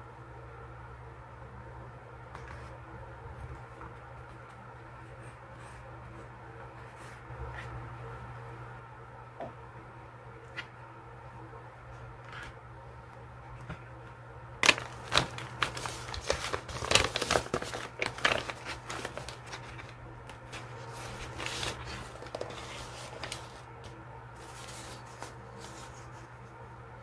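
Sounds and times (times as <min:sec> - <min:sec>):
paper crinkling and rustling: 0:14.6 - 0:26.5.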